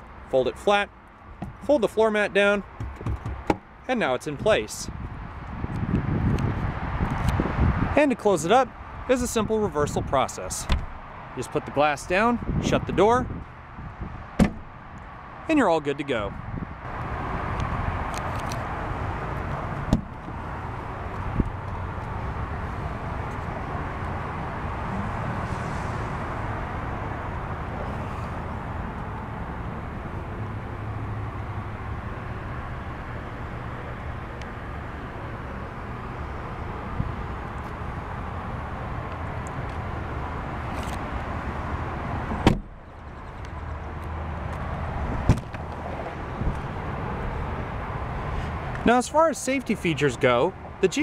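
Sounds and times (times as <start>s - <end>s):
outdoor background rush: 0.0s - 51.0s
car door shutting: 10.7s - 11.0s, 14.4s - 14.7s, 19.9s - 20.2s, 42.3s - 42.8s.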